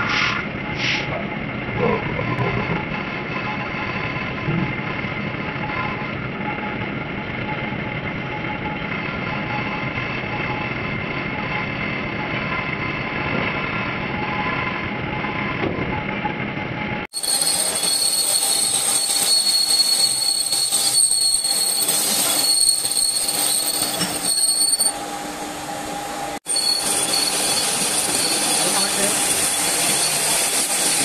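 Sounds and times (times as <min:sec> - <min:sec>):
metal lathe whining: 0:17.1 - 0:31.0.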